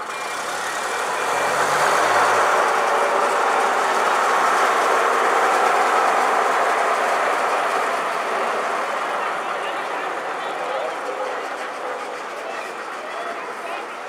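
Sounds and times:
bus engine pulling away: 0.0 - 14.0.

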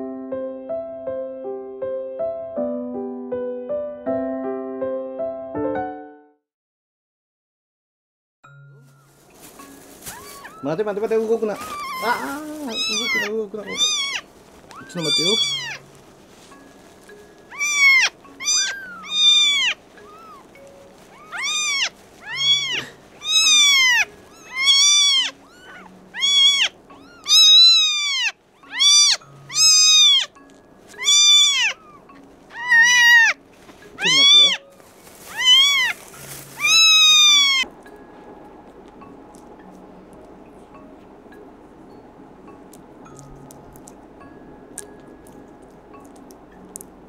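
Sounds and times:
kitten mewing: 11.5 - 15.9, 17.5 - 20.5, 21.1 - 30.3, 31.0 - 33.4, 34.0 - 36.0, 36.6 - 37.6.

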